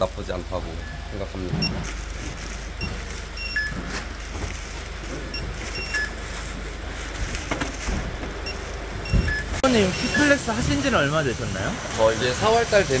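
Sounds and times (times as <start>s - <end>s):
steady low hum: 0.0s - 12.0s
plastic bags rustling: 0.2s - 13.0s
scanner beeps: 2.8s - 3.8s, 5.3s - 6.2s, 8.4s - 10.5s.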